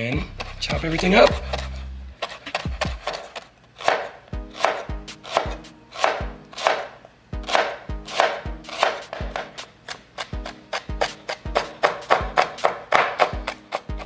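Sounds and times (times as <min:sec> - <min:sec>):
music with deep steady beat: 0:00.2 - 0:03.2, 0:04.4 - 0:06.5, 0:07.4 - 0:09.7, 0:10.3 - 0:14.0
knife slicing on cutting board: 0:01.2 - 0:14.0.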